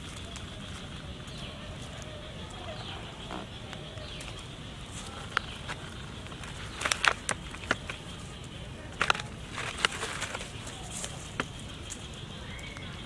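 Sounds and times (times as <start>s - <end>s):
faint bird calls: 0.0s - 13.0s
plastic bag crinkling: 5.0s - 8.2s, 9.0s - 11.5s.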